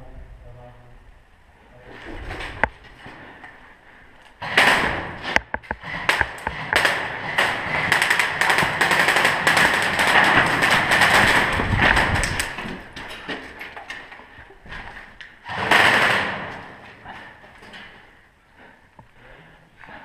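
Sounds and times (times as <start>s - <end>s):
gear rustling and knocking: 5.2s - 18.0s
footsteps on concrete floor: 11.6s - 15.4s.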